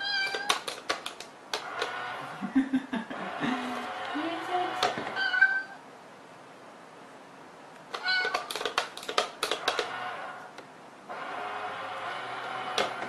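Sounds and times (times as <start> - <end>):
cat meowing: 0.0 - 0.6, 5.1 - 5.8, 7.9 - 8.6
cat pawing with sharp clicks: 0.2 - 1.9, 7.8 - 9.9
toy motor whirring: 7.9 - 10.4.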